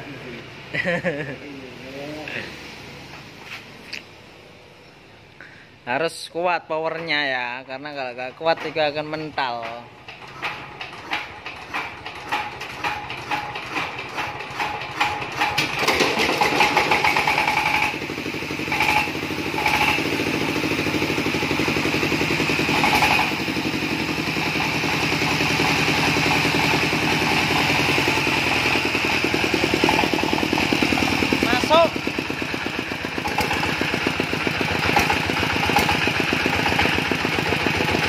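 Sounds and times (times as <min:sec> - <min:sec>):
diesel engine hand-cranked and running: 0:08.4 - 0:38.0.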